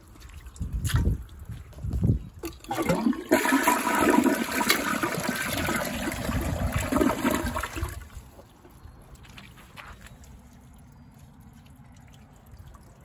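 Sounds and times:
toilet flushing: 2.6s - 8.0s.

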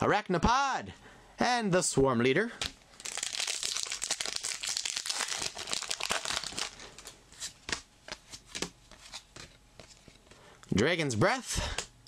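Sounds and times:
foil wrapper tearing and crinkling: 3.0s - 7.1s.

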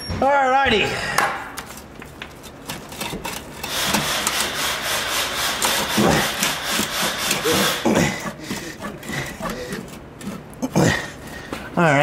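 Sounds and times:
hand tool scraping metal: 2.5s - 11.1s.

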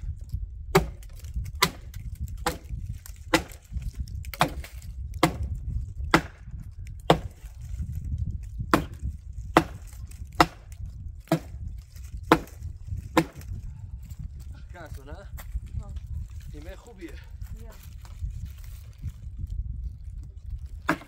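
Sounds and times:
axe chopping wood: 0.7s - 7.5s, 8.6s - 11.6s, 12.2s - 13.6s, 20.8s - 21.0s.

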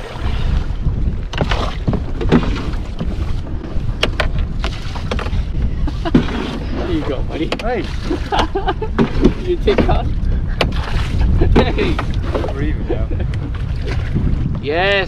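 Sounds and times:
water lapping around canoes: 0.0s - 14.8s
wind rumbling on microphone: 0.0s - 15.0s
knocks and clunks: 1.3s - 5.5s, 7.4s - 7.8s.

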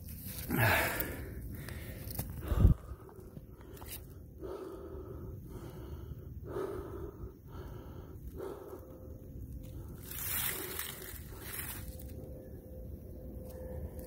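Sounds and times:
person breathing close: 0.2s - 12.1s
dry leaf litter rustling: 10.0s - 12.1s.

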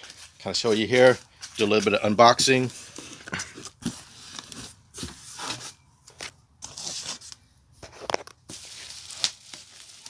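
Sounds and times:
cardboard box scraping: 2.7s - 5.8s
bubble wrap crinkling: 8.0s - 10.0s.

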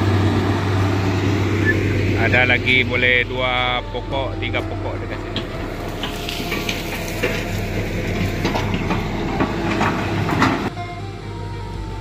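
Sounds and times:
engine running: 0.0s - 12.0s
music: 3.0s - 6.8s, 9.0s - 12.0s
rattling and clattering: 5.2s - 10.7s.

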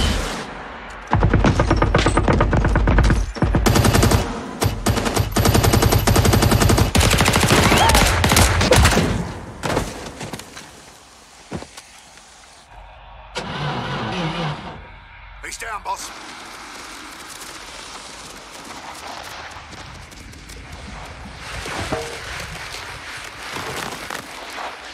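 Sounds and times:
fire hissing: 10.5s - 21.6s.

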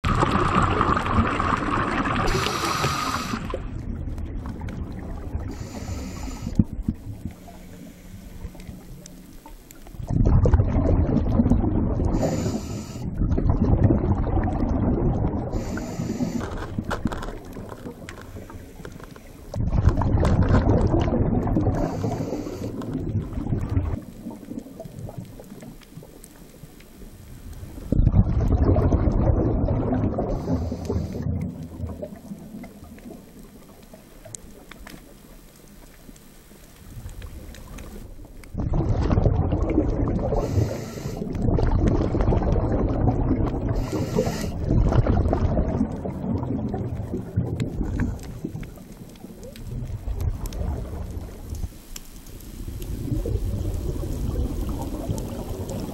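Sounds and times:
diver's bubbles underwater: 0.0s - 36.2s, 36.8s - 55.9s
brief hiss: 2.3s - 3.5s.

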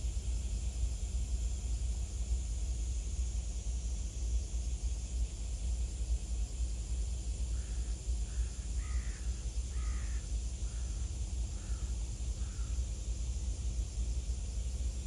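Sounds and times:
crow cawing: 7.6s - 11.0s, 11.6s - 12.8s.

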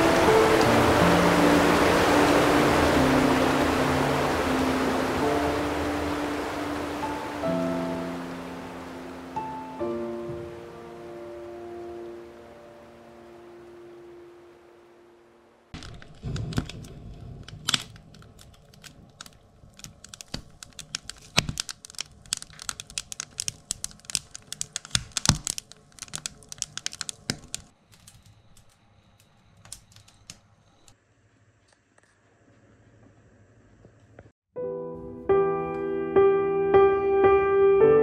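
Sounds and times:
wood fire crackling and popping: 15.8s - 28.7s.

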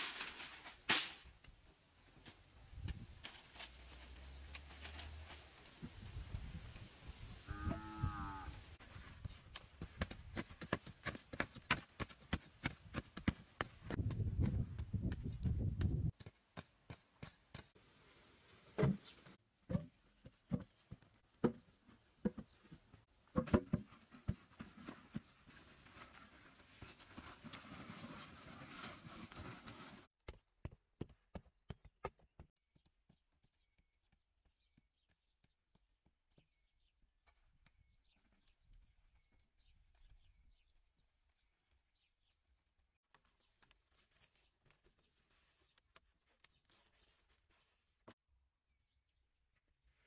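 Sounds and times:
loose earth rustling: 0.0s - 11.7s.

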